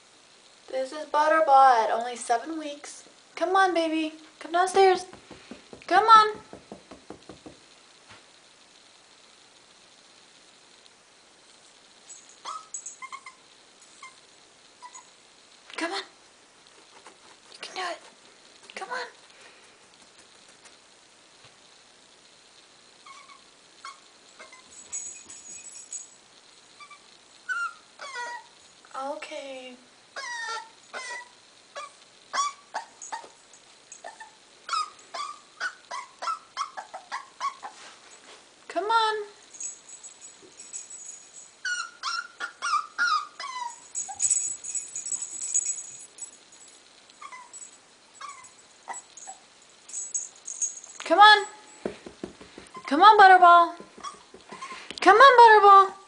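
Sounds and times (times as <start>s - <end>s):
puppy whining: 12.4s - 15.2s, 23.0s - 24.9s, 26.8s - 28.6s, 30.2s - 37.9s, 41.6s - 44.6s, 47.2s - 49.5s, 52.7s - 53.0s, 53.8s - 55.0s.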